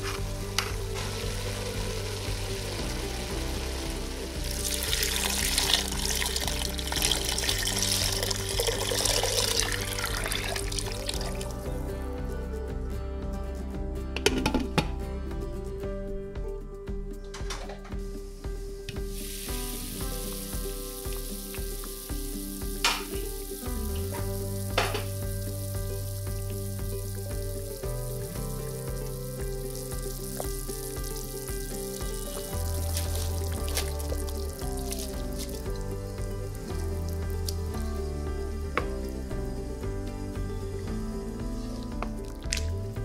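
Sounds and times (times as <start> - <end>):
soup boiling and bubbling: 0.0 - 11.7, 18.4 - 43.0
soft background music: 0.0 - 43.0
liquid pouring and splashing into pot: 0.1 - 11.6, 28.6 - 35.8.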